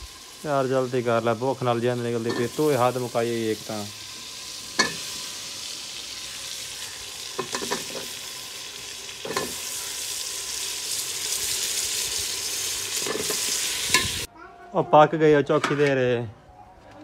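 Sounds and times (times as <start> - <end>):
potatoes sizzling in hot oil: 0.0 - 14.3
metal knocking against a pot: 7.4 - 8.1.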